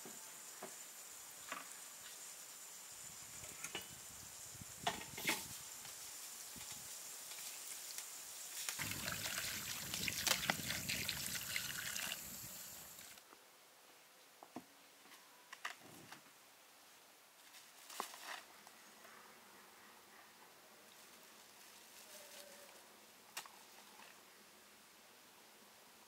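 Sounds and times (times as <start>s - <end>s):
water pouring into a basin: 8.8s - 13.1s.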